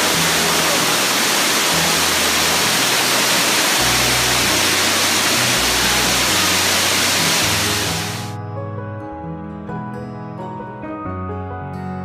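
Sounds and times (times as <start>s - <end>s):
waterfall rushing over rocks: 0.0s - 8.4s
low bass background music: 0.0s - 12.0s.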